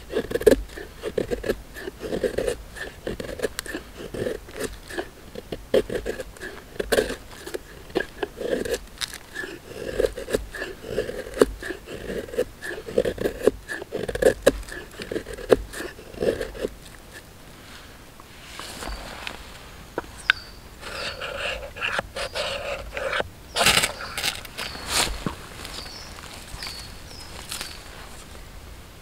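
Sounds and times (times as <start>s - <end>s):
knife carving wood: 0.0s - 17.3s, 20.2s - 27.8s
knife scraping ferrocerium rod: 0.0s - 17.3s, 20.2s - 24.8s.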